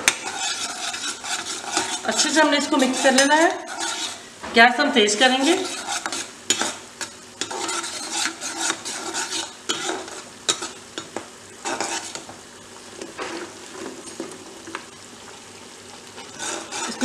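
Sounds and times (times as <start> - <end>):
metal ladle scraping a pan: 0.0 - 4.3, 5.2 - 12.3, 16.2 - 17.0
potatoes sizzling in hot oil: 0.0 - 17.0.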